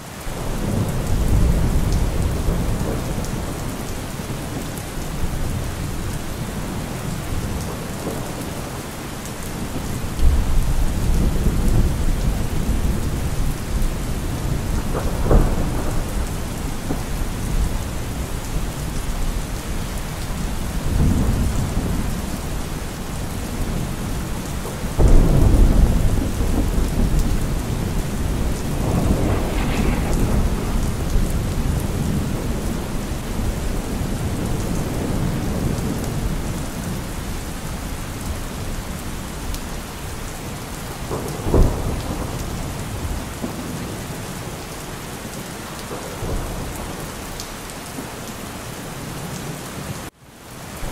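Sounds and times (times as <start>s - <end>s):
steady rain: 0.0s - 50.9s
rolling thunder: 0.3s - 8.9s, 9.5s - 44.6s
sharp crack of thunder: 9.7s - 19.6s, 20.6s - 37.0s, 40.9s - 44.4s.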